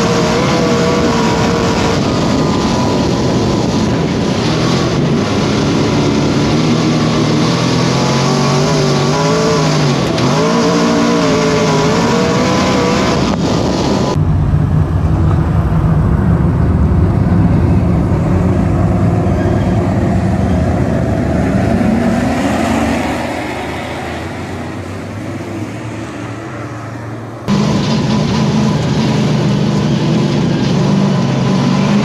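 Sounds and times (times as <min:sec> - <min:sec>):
race car engine from cockpit: 0:00.0 - 0:32.0
race cars passing rumble: 0:00.0 - 0:32.0.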